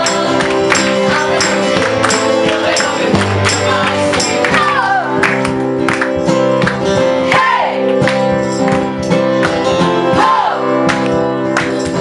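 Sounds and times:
people singing: 0:00.0 - 0:05.4, 0:07.1 - 0:08.0, 0:09.8 - 0:10.8
strummed acoustic guitars: 0:00.0 - 0:12.0.

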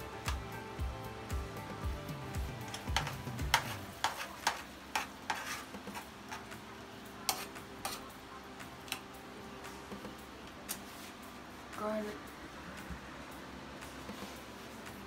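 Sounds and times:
metal spoon scraping frying pan: 0:02.7 - 0:06.4.

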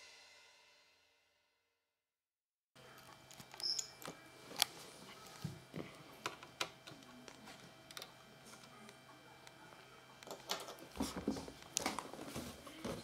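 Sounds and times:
faint steady hum: 0:02.8 - 0:13.0.

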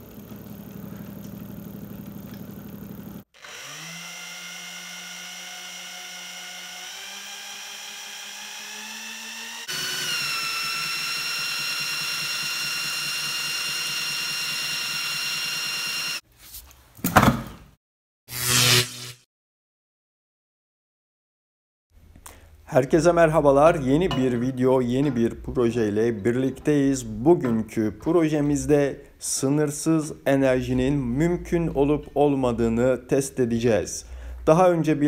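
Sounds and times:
belt-driven motor humming: 0:00.0 - 0:16.2
electric drill whining: 0:03.3 - 0:16.2.

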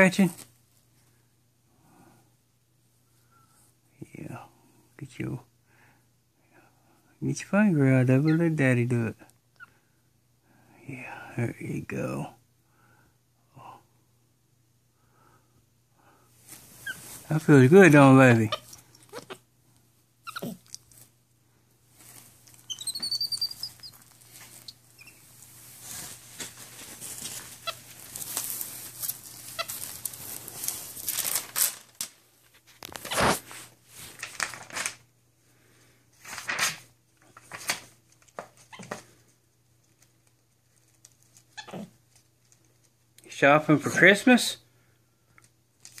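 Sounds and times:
high squeak: 0:22.7 - 0:24.0
glossy pages rustling and flapping: 0:25.8 - 0:35.1, 0:36.2 - 0:38.9.

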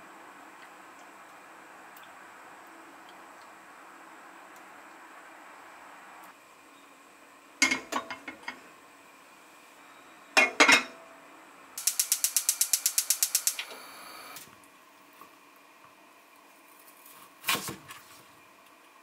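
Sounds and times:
cookware clattering: 0:10.4 - 0:11.0
gas range igniter clicking: 0:11.8 - 0:13.8
gas burner lighting: 0:11.8 - 0:14.5.

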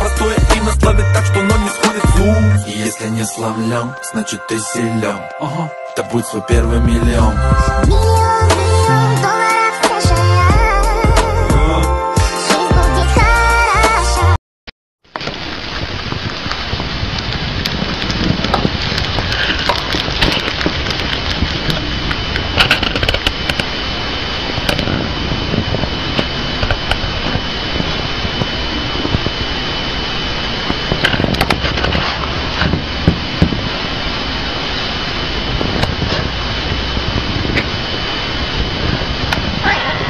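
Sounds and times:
thin high whine: 0:00.0 - 0:14.4, 0:15.1 - 0:40.0
steady hiss: 0:15.1 - 0:40.0.

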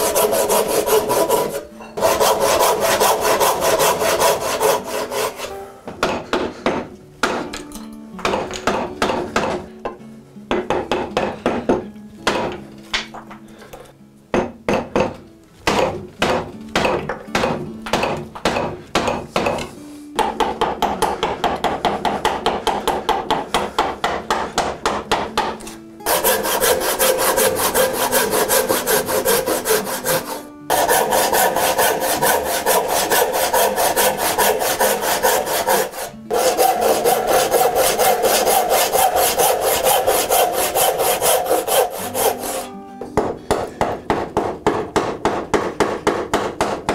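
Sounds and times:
handsaw cutting wood: 0:00.0 - 0:05.6, 0:26.1 - 0:42.7
chisel paring strokes: 0:00.0 - 0:07.5, 0:18.5 - 0:46.9
mallet striking chisel into wood: 0:05.9 - 0:13.3, 0:14.3 - 0:46.9.

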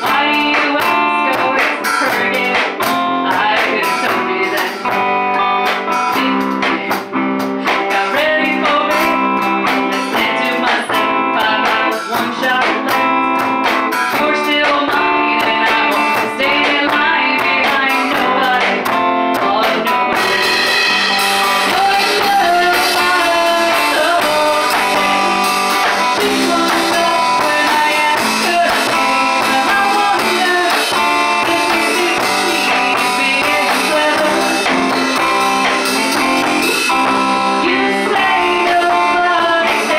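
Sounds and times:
electric bass: 0:00.0 - 0:39.9
electric guitar: 0:00.0 - 0:39.9
woman singing into a microphone: 0:00.0 - 0:39.9.

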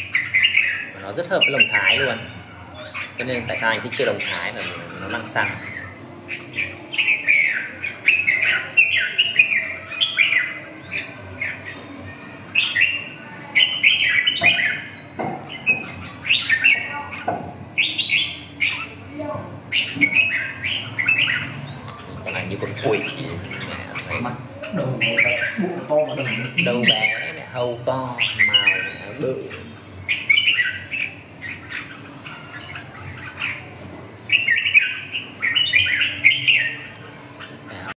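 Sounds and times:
birds singing whistled phrases: 0:00.0 - 0:37.9
sharp knocks: 0:14.4 - 0:15.8.

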